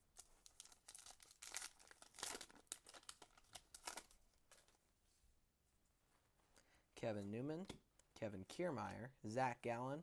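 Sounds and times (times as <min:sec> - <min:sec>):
foil wrapper tearing and crinkling: 0:00.5 - 0:04.1.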